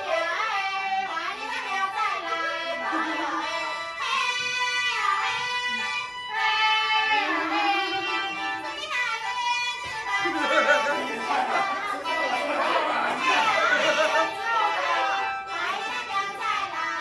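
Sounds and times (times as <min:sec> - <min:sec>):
women singing together: 0:00.0 - 0:17.0.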